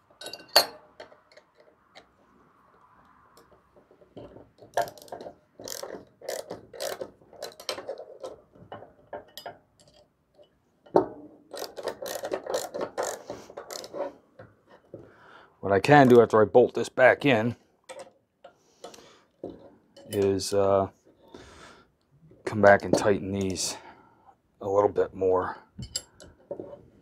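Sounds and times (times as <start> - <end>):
hand ratchet clicking: 4.7 - 8.4, 11.5 - 14.1.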